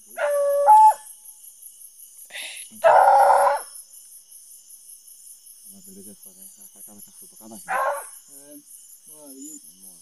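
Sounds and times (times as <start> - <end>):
crickets chirping: 0.0 - 10.0
distant dogs baying: 7.6 - 8.2.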